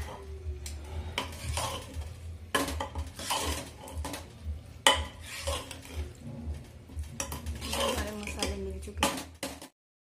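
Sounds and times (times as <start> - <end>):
spoon stirring thick mix: 1.1 - 9.7
spoon scraping and clinking on metal: 1.2 - 4.2, 4.9 - 6.1, 7.1 - 9.6.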